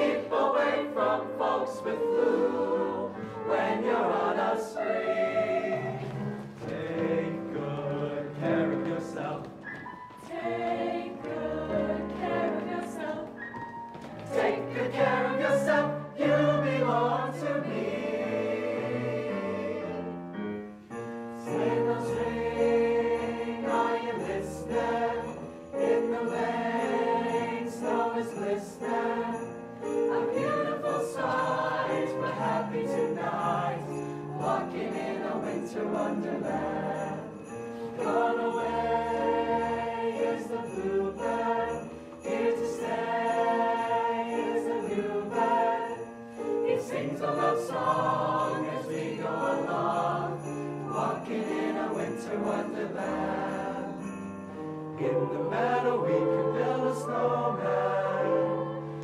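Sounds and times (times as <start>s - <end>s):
mixed choir singing: 0.0s - 13.4s, 14.2s - 20.5s, 21.4s - 59.0s
sleigh bells jingling: 7.0s - 13.2s, 20.9s - 58.9s.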